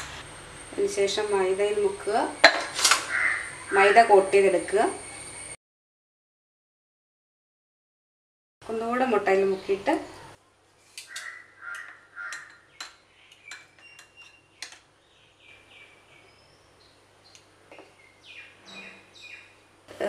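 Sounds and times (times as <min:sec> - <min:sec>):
birds calling: 0:02.4 - 0:04.0, 0:11.0 - 0:19.8.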